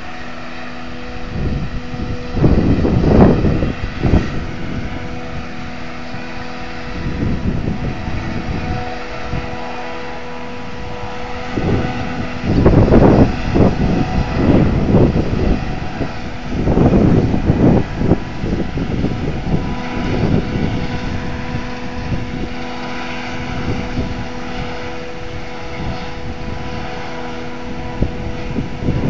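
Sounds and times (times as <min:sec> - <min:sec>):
diesel engine running: 0:00.0 - 0:29.0
wind buffeting the microphone: 0:00.0 - 0:29.0.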